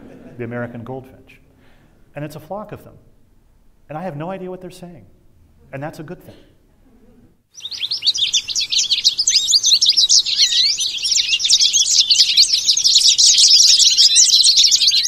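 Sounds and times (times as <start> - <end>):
flock of finches chirping: 7.6 - 15.0.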